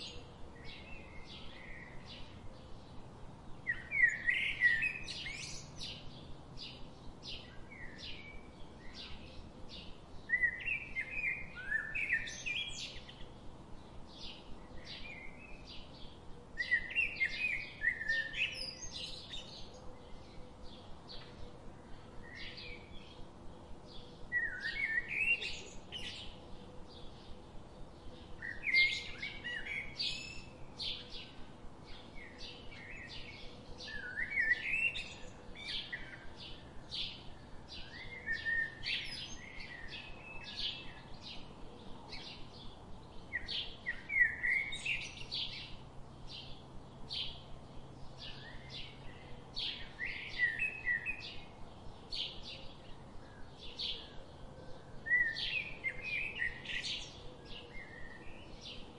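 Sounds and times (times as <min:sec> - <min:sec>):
songbirds chirping: 0:00.0 - 0:58.9.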